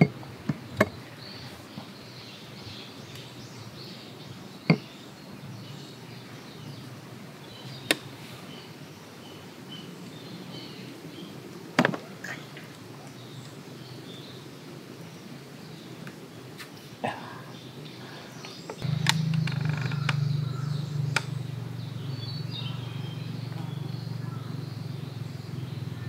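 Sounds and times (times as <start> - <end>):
outdoor background noise: 0.0 - 26.0
sharp clicks: 18.7 - 20.2.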